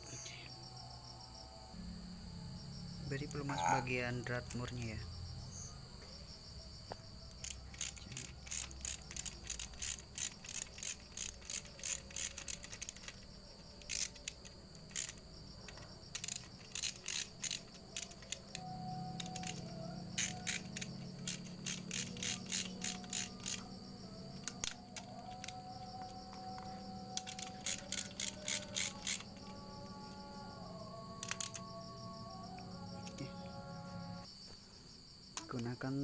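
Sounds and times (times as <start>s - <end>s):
ratchet wrench clicking: 7.3s - 23.8s, 24.4s - 25.6s, 27.1s - 29.4s, 31.2s - 31.6s.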